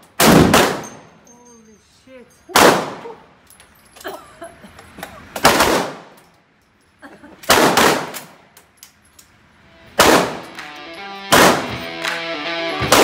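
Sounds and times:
gunshots with ringing tail: 0.2s - 1.1s, 2.5s - 3.1s, 5.4s - 6.1s, 7.5s - 8.2s, 10.0s - 10.6s, 11.3s - 11.9s, 12.8s - 13.0s.

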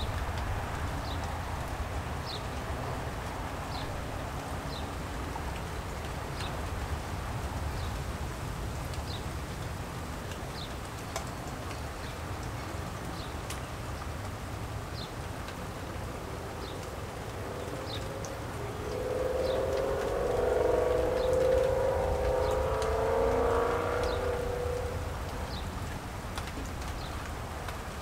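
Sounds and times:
rain hiss: 0.0s - 28.0s
wind rumble on microphone: 0.0s - 28.0s
sharp ticks: 16.7s - 27.8s.

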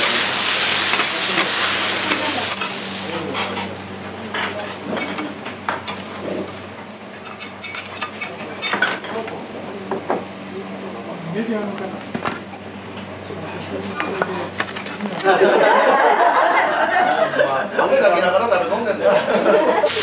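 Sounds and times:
food sizzling on a griddle: 0.0s - 3.7s, 19.8s - 20.0s.

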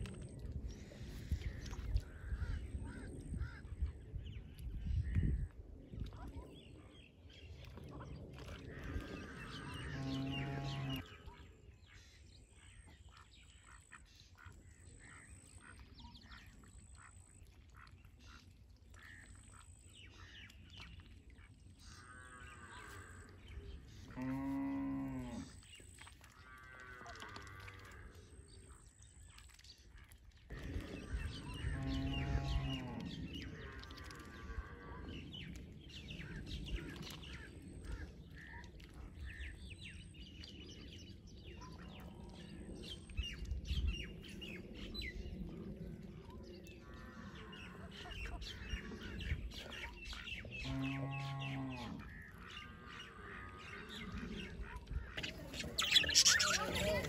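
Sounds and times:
low drawn-out animal call: 8.7s - 11.1s, 24.0s - 25.6s, 31.0s - 35.1s, 50.6s - 57.0s
small birds chirping: 53.6s - 57.0s.

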